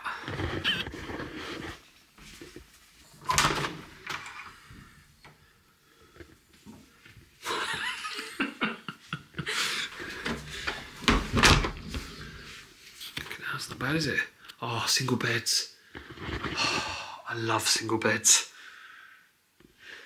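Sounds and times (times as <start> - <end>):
soft laughter: 7.4 - 10.0
door thud: 10.2 - 11.9.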